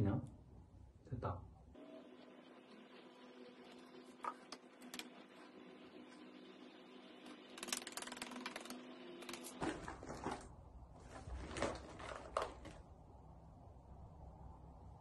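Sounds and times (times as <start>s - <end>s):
rustling of small items: 9.5s - 12.9s.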